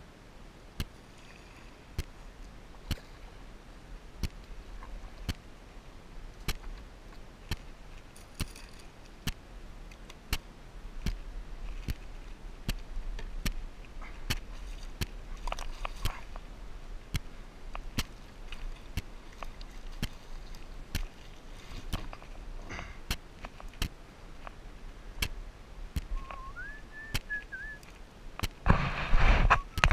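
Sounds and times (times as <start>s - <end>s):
faint water noise: 0.0s - 29.9s
paddle clicking: 7.5s - 16.5s, 17.1s - 28.6s.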